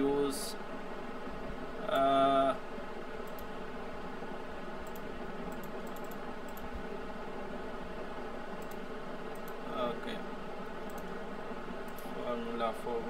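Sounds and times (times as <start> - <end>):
low background hiss: 0.0 - 13.0
keyboard and mouse clicks: 4.8 - 6.7, 8.6 - 9.6.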